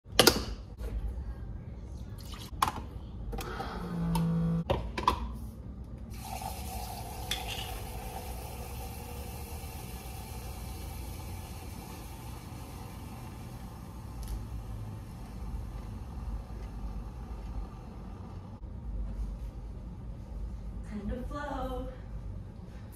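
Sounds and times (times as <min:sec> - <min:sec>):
short machine hum: 0:03.6 - 0:04.7
hot water hissing into mug: 0:06.1 - 0:16.0.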